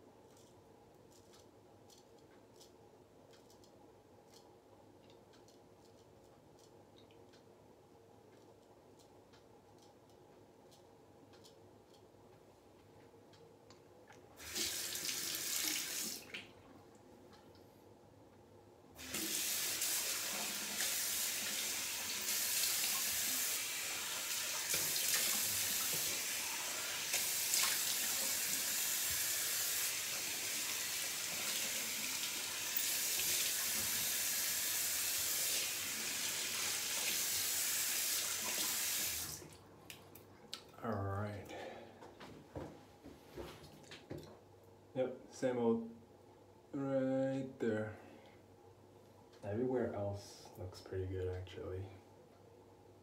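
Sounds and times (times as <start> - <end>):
sink tap running: 14.4 - 16.2, 19.0 - 39.4.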